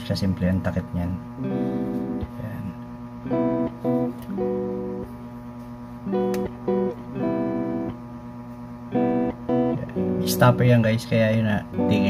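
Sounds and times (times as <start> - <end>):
acoustic guitar strumming: 1.4 - 2.4, 3.2 - 5.1, 6.1 - 8.0, 8.9 - 10.8, 11.8 - 12.0.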